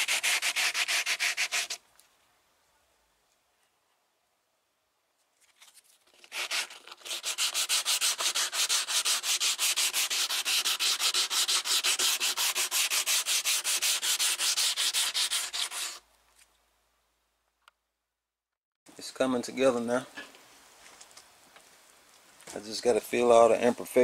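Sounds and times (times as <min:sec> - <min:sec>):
hand sanding scraping strokes: 0:00.0 - 0:01.8, 0:06.2 - 0:16.0.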